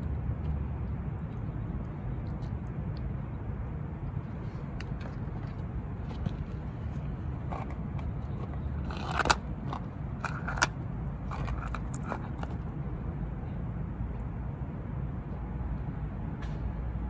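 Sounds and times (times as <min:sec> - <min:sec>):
low background rumble: 0:00.0 - 0:17.0
handling clicks and scrapes on phone: 0:04.4 - 0:12.7.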